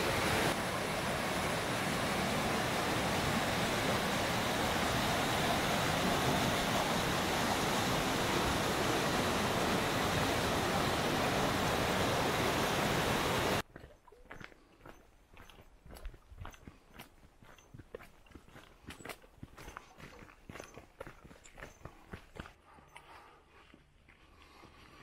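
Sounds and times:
creek rushing over boulders: 0.0 - 14.6.

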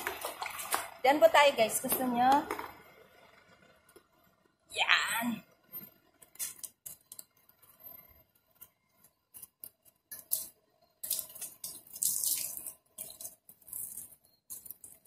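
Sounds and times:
water splashing on a car: 0.0 - 1.4, 11.0 - 14.1.

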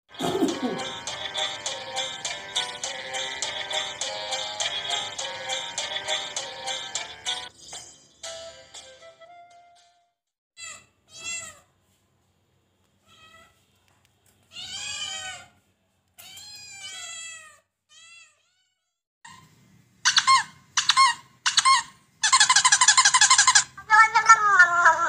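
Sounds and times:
cats meowing: 14.5 - 15.6, 16.2 - 18.9.

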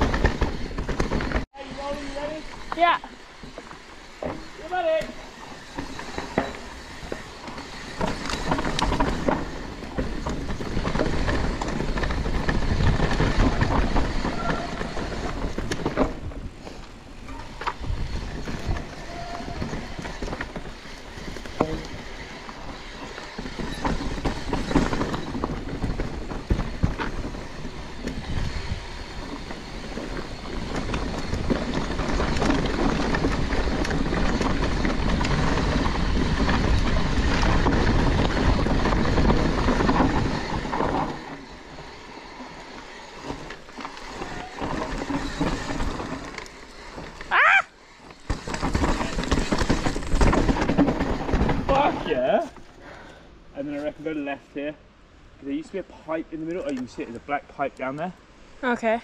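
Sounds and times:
bike clattering over bumps: 0.0 - 53.2
bike tyres rushing on dirt: 0.0 - 59.0.

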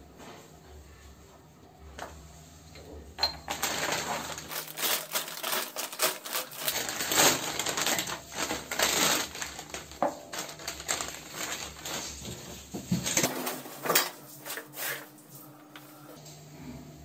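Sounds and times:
plastic packet crinkling: 3.4 - 12.6.

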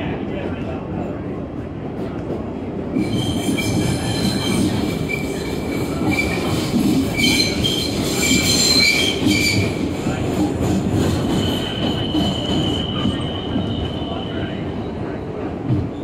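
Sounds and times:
subway train rumble and rattle: 0.0 - 16.0
high-pitched wheel squeals: 3.0 - 9.8.

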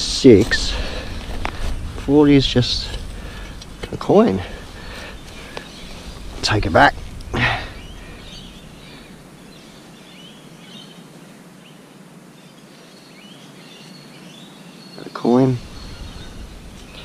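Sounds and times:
bird chirps: 7.2 - 11.8, 12.4 - 17.0.

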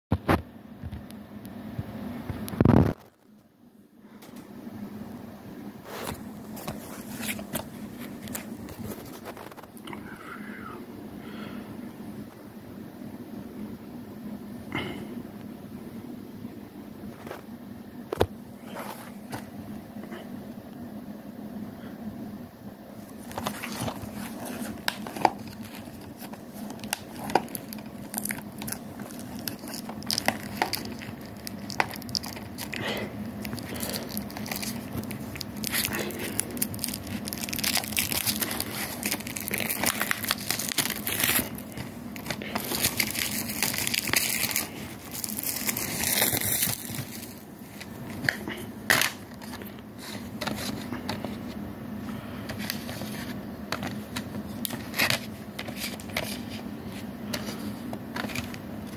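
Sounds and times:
plastic shrink-wrap crackling: 23.2 - 51.2.

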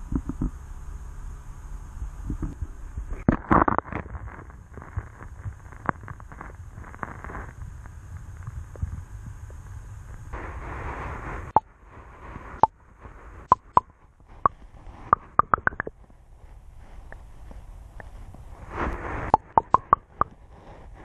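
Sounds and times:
muffled underwater water rumble: 0.0 - 21.0
sharp clicks: 14.4 - 15.9, 19.3 - 20.4.

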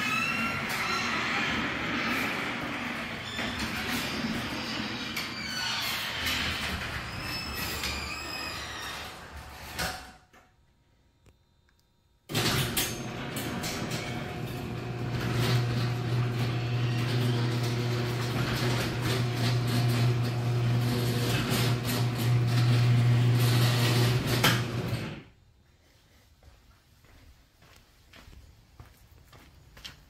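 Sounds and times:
garage door opener motor hum: 0.0 - 10.2, 12.3 - 25.3
garage door rattling and clicking: 0.0 - 10.5, 12.3 - 25.3.

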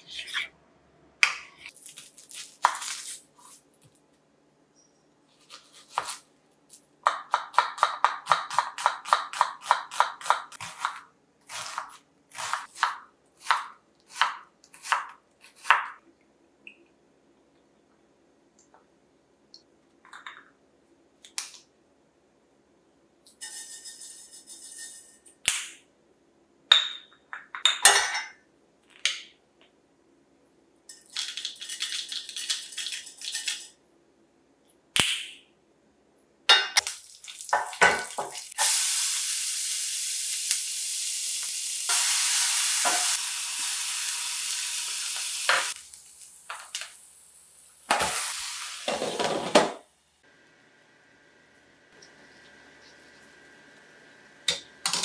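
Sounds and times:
spices sizzling in hot oil: 36.8 - 49.2.

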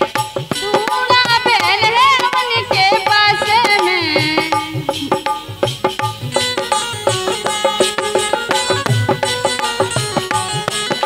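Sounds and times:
hand drum strokes: 0.0 - 11.0
harmonium: 0.0 - 11.0
woman singing: 0.5 - 5.4.

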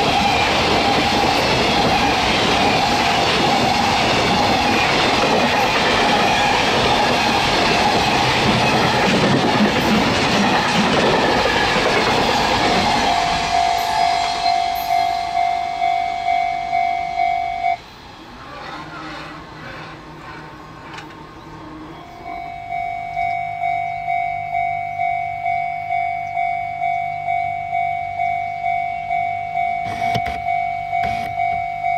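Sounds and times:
train wheel clatter: 0.0 - 15.2
freight train passing: 0.0 - 31.9
level crossing alarm dinging: 12.1 - 17.8, 22.1 - 31.9.

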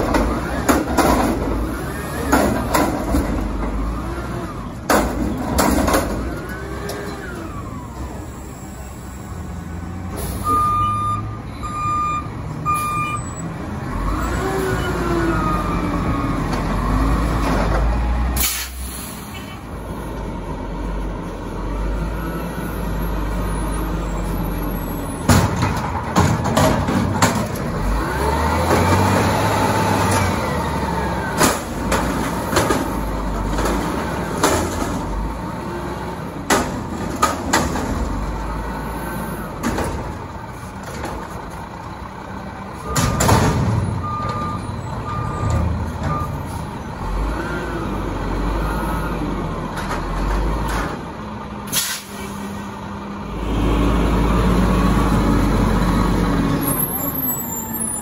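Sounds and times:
garbage truck engine: 0.0 - 58.0
short beeps: 10.4 - 13.4
air brake hisses: 18.4 - 19.6, 51.7 - 52.7.

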